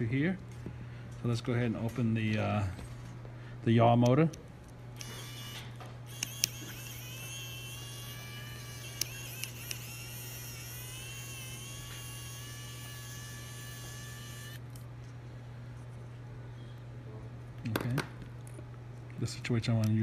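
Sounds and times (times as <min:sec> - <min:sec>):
electric screwdriver whining: 0:05.0 - 0:14.6
screwdriver bit clicking on screws: 0:05.0 - 0:14.6.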